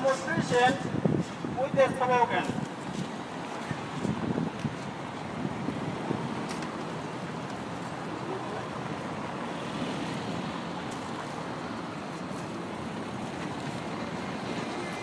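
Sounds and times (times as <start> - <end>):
wind on microphone: 0.0 - 9.0
city traffic: 0.0 - 15.0.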